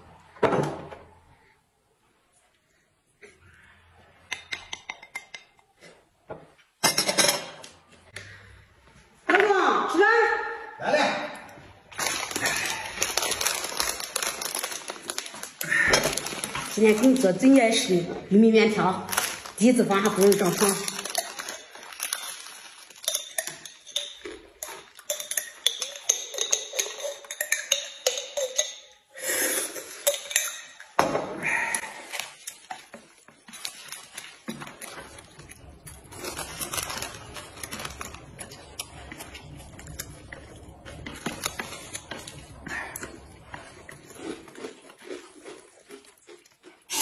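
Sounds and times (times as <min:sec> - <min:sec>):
plastic sachet crinkling: 0:11.9 - 0:17.9, 0:18.9 - 0:24.1, 0:33.5 - 0:42.6.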